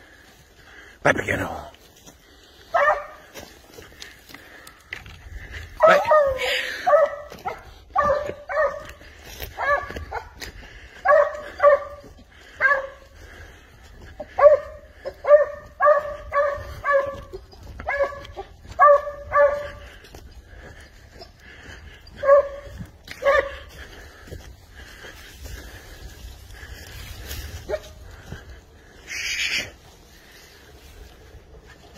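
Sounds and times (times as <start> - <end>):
hound barking: 2.6 - 3.6, 5.7 - 20.0, 21.2 - 24.0, 27.5 - 28.2.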